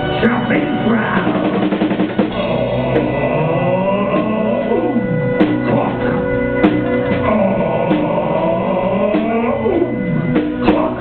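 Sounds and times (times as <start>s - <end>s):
live band playing pop song: 0.0s - 11.0s.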